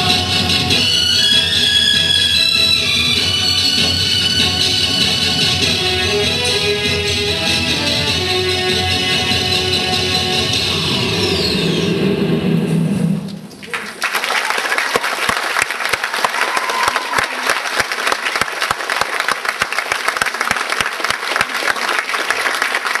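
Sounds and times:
dance music: 0:00.0 - 0:11.3
audience applauding: 0:13.6 - 0:23.0.

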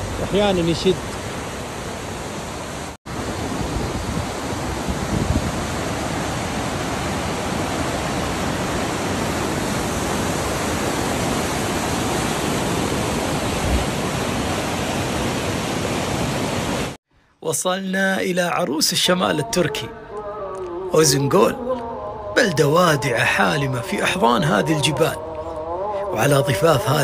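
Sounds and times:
river roaring over rocks: 0:00.0 - 0:17.0.

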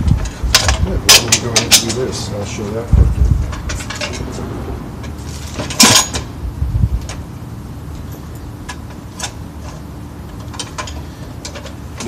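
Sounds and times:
tools clattering: 0:05.1 - 0:06.3.

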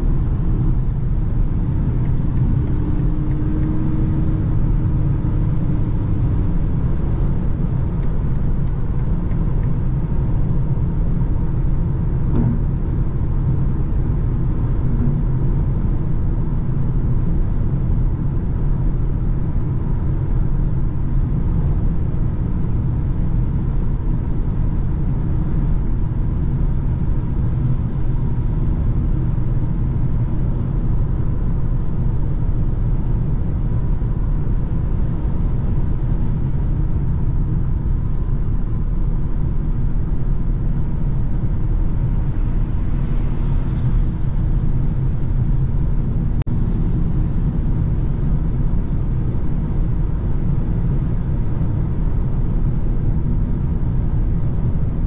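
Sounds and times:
car engine: 0:00.0 - 0:16.6.

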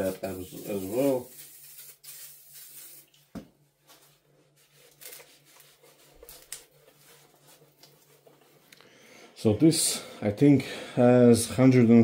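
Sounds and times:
cloth rag rubbing metal: 0:00.0 - 0:03.0.

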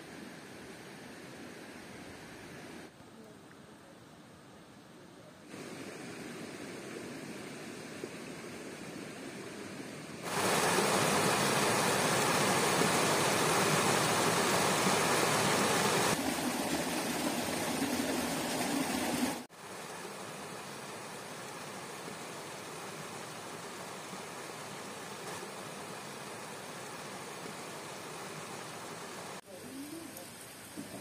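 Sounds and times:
steady background hiss: 0:00.0 - 0:17.0, 0:19.4 - 0:31.0
stream splashing over rocks: 0:10.2 - 0:29.4.

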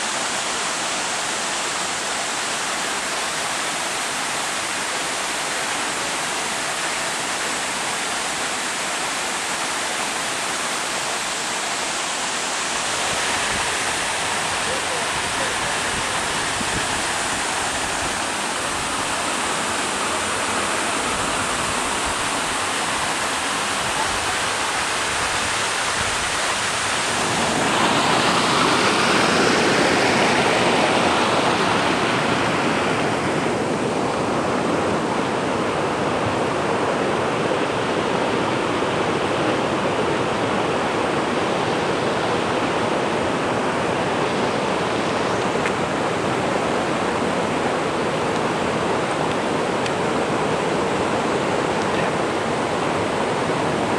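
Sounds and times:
waterfall rushing: 0:00.0 - 0:53.9.

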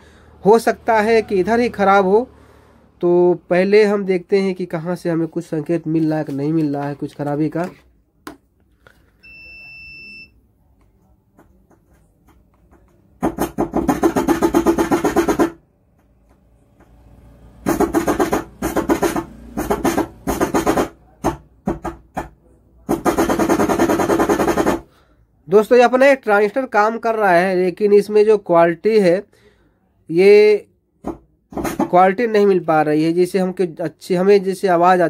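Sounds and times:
short electronic beep: 0:09.2 - 0:10.4.

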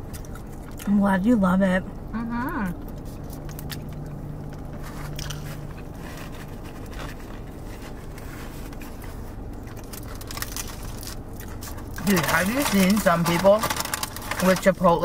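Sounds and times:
chewing and crunching: 0:00.0 - 0:01.4, 0:02.6 - 0:15.0
foil wrapper crinkling: 0:04.6 - 0:15.0.

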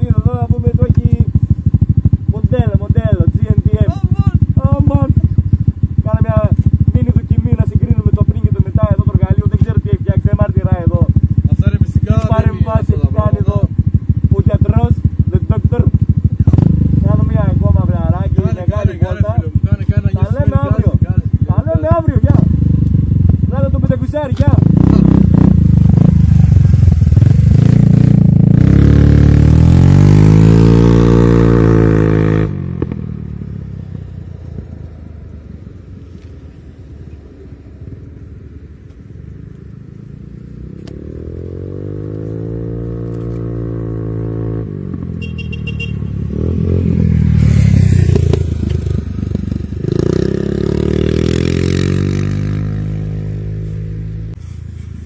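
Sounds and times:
engine revving up and down: 0:24.4 - 0:33.0, 0:46.2 - 0:54.4
scooter engine accelerating: 0:24.4 - 0:34.4.

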